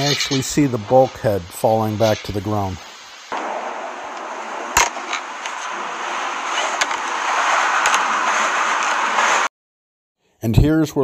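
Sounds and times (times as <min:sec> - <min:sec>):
loud rushing vapour venting: 0:00.0 - 0:09.5
faint pops: 0:03.3 - 0:07.1
sharp bang: 0:03.3 - 0:09.5.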